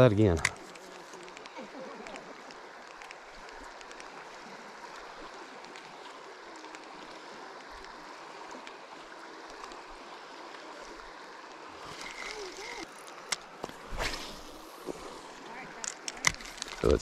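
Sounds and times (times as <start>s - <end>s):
flowing river water: 0.0s - 17.0s
faint ticks: 0.3s - 8.8s.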